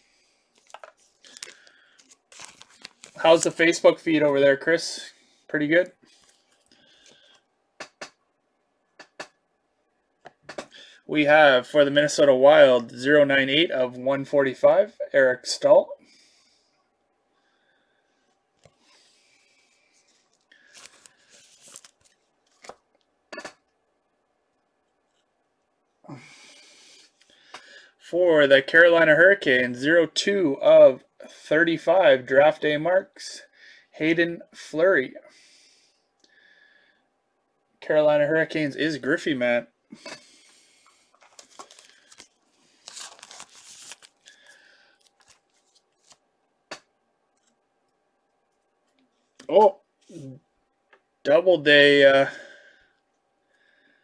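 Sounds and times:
cards and packaging rustling: 0:00.5 - 0:04.3, 0:19.6 - 0:23.0, 0:40.8 - 0:46.3.

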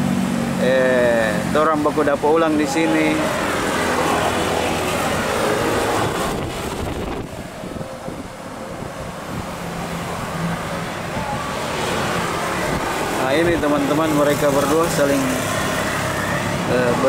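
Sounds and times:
strong wind over microphone: 0:03.4 - 0:13.8.

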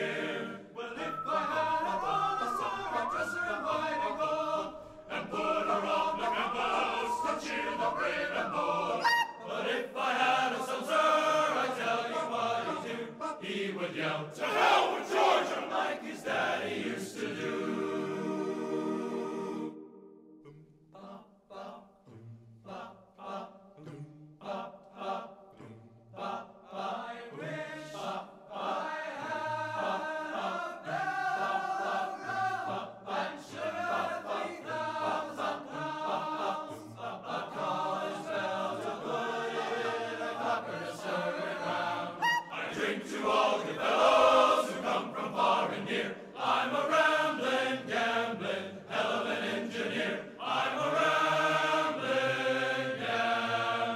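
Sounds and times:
choir singing with music: 0:00.0 - 0:53.9.

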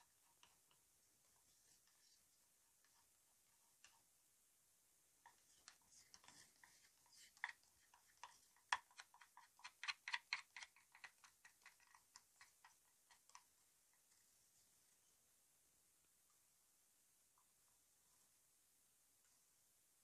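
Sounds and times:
faint light clicks and taps: 0:05.2 - 0:14.3.

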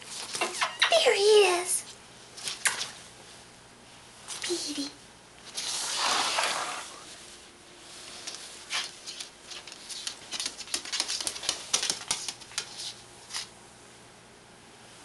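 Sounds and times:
bird claws tapping on floor: 0:09.0 - 0:13.0.

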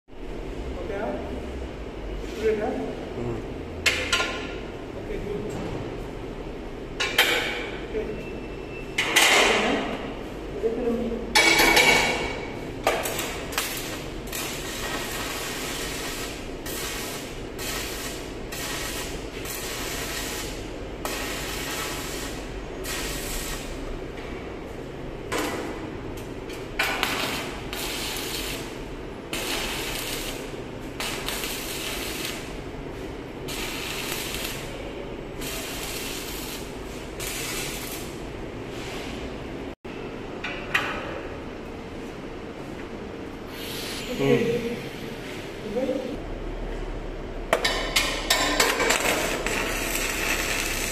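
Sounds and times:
welding arc hissing: 0:13.0 - 0:23.9, 0:26.9 - 0:32.6, 0:33.4 - 0:38.2, 0:43.5 - 0:44.6, 0:48.4 - 0:50.9.

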